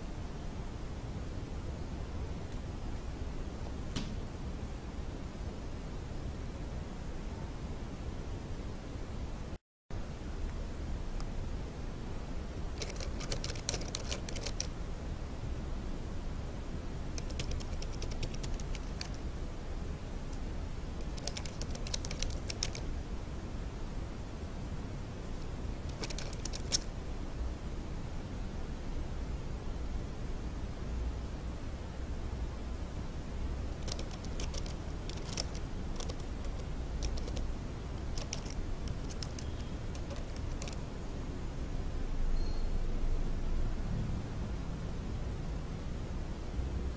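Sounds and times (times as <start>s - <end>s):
low background noise: 0.0s - 46.9s
steady low hum: 0.0s - 46.9s
typing on computer keyboard: 12.8s - 14.7s, 17.2s - 19.2s, 21.0s - 22.8s, 25.9s - 26.9s, 33.8s - 40.8s.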